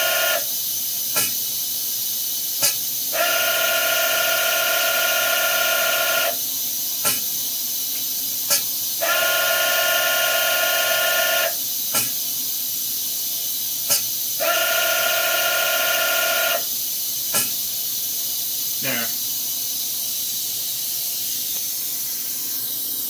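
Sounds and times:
pneumatic hiss: 0.0s - 3.8s, 4.7s - 10.0s, 10.6s - 14.8s, 16.5s - 23.0s
pneumatic brake clicks: 1.1s - 1.5s, 2.6s - 3.3s, 7.0s - 7.4s, 8.0s - 9.2s, 11.9s - 12.3s, 13.8s - 14.2s, 17.3s - 17.7s
machine whine: 3.1s - 6.4s, 9.0s - 11.6s, 14.4s - 16.7s.

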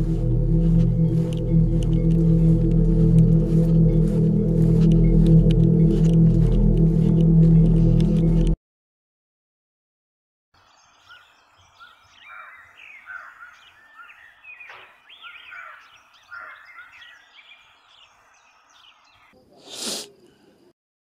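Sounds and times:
loud whoosh: 0.0s - 8.6s
songbirds chirping and singing: 10.6s - 19.4s.

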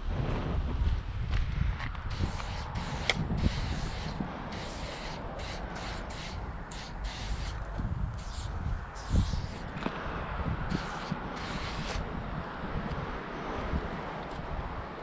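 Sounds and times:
steady low rumble: 0.0s - 14.8s
spray paint can hissing: 2.1s - 9.7s, 10.7s - 12.0s.

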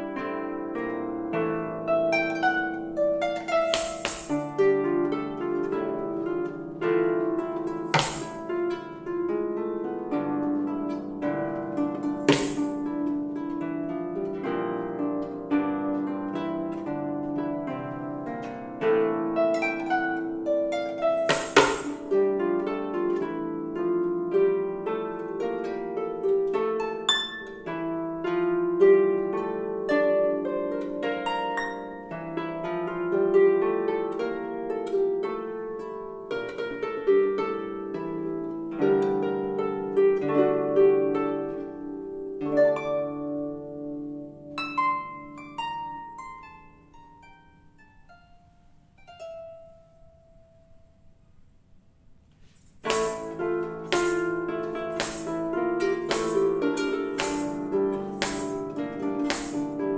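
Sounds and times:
harp playing melody: 0.0s - 51.1s, 52.4s - 59.9s
bell anklets jingling: 3.6s - 4.6s, 7.9s - 8.5s, 12.3s - 12.8s, 21.2s - 22.1s, 52.4s - 55.5s, 56.1s - 59.8s.

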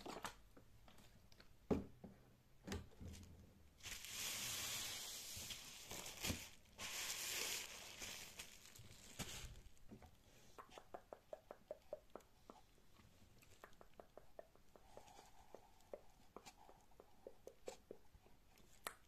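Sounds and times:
bubble wrap crinkling: 3.8s - 9.9s.

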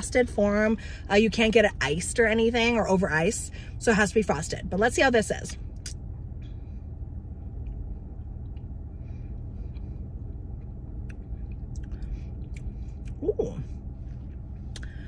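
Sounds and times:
steady low rumble: 0.0s - 15.0s
mouth and lip clicks: 14.7s - 14.9s.

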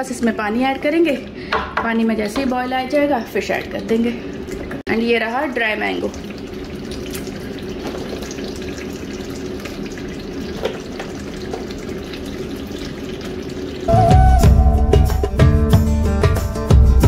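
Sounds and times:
curry bubbling and spluttering: 5.6s - 13.9s
loud music: 13.9s - 17.0s.

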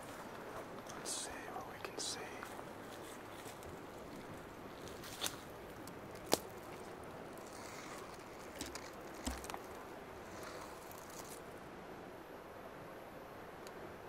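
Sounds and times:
faint outdoor hiss: 0.0s - 14.0s
sharp clicks and crunches: 3.0s - 11.4s.

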